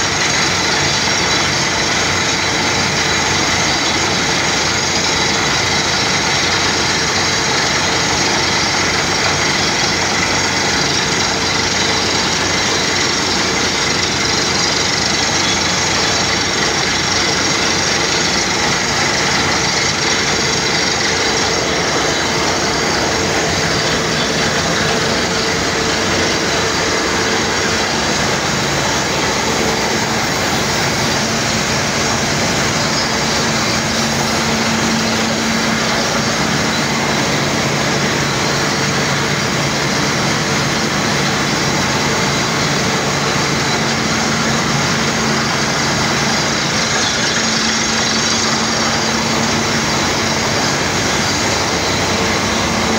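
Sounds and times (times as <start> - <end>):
compressor engine hum: 0.0 - 52.9
compressed air rushing: 17.2 - 40.0.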